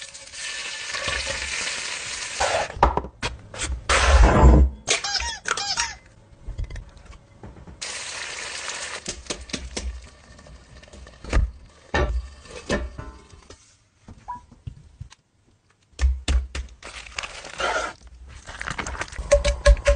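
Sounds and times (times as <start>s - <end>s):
egg sizzling in hot skillet: 7.8s - 11.2s.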